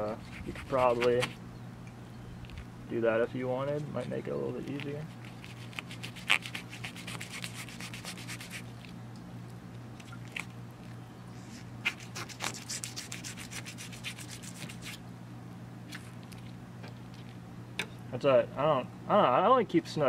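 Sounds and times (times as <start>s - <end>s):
knife scraping fish scales: 0.0s - 1.4s, 3.9s - 8.9s, 11.4s - 15.0s.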